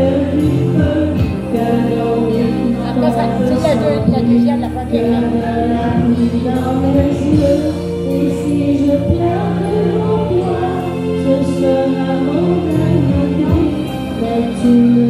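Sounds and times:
karaoke backing track: 0.0s - 15.0s
woman singing into microphone: 0.0s - 15.0s.

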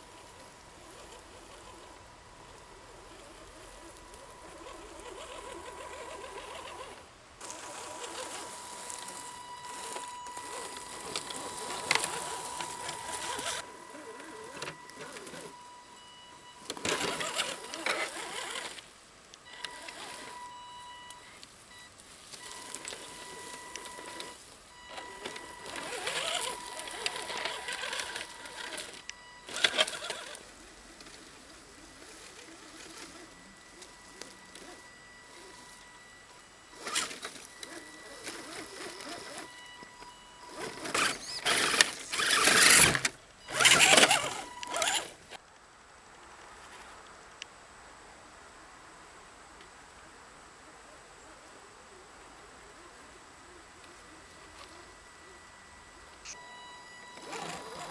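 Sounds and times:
branches scraping against toy truck: 0.0s - 18.9s, 19.5s - 45.4s, 57.1s - 57.9s
electric motor whining: 0.0s - 18.9s, 19.5s - 45.4s, 56.0s - 57.9s.

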